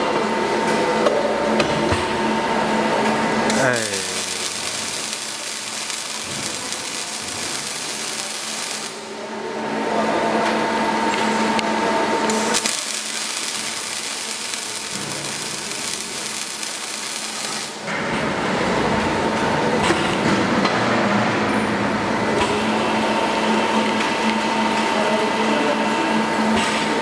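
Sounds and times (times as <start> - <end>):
machine hum: 0.0 - 27.0
welding arc hissing: 3.5 - 9.1, 12.3 - 17.8.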